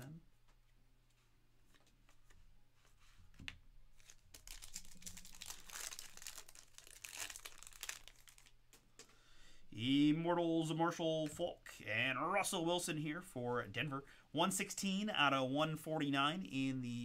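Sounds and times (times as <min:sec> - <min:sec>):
foil wrapper tearing and crinkling: 0:04.0 - 0:08.6.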